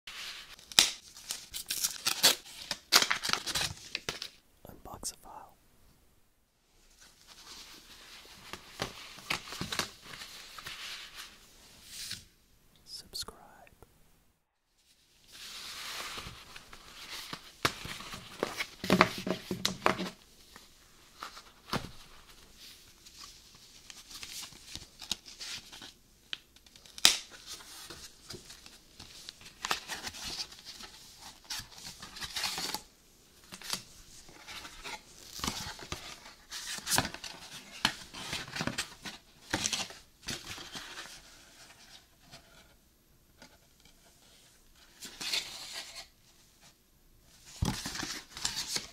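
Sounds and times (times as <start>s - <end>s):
cardboard and paper rustling: 15.3s - 26.0s, 26.7s - 42.6s, 47.4s - 48.9s.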